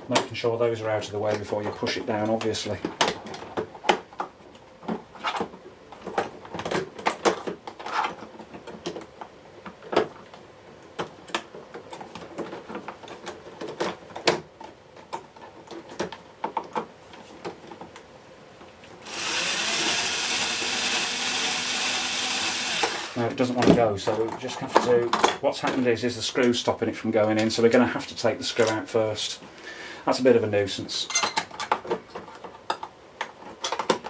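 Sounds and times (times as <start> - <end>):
power screwdriver motor running: 19.0 - 23.2.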